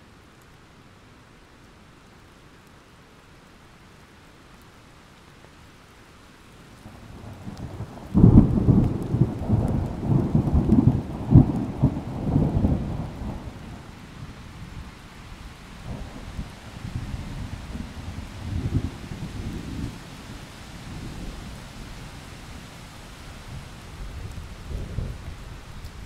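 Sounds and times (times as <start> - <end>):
light rain hissing: 0.0 - 26.0
thunder rumbling: 7.2 - 14.0, 15.8 - 21.6, 23.5 - 26.0.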